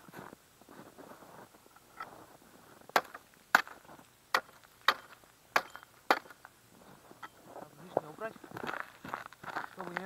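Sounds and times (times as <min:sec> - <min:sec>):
hatchet chopping ice: 0:03.0 - 0:06.4.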